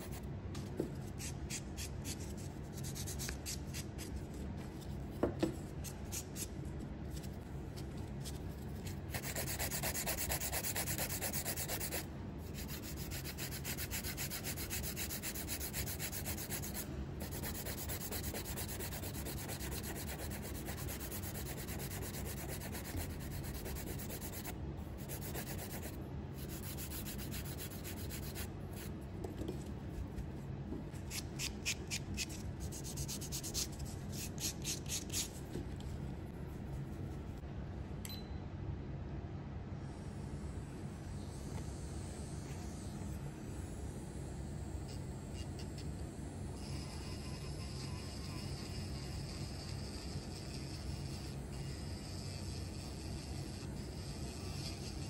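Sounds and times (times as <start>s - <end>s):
nail buffer rubbing on fingernail: 9.1s - 28.9s, 31.1s - 35.4s, 46.6s - 55.0s.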